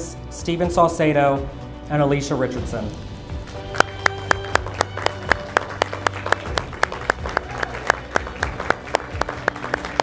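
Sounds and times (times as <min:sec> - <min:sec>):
background music with low notes: 0:00.0 - 0:10.0
audience applauding: 0:03.5 - 0:10.0.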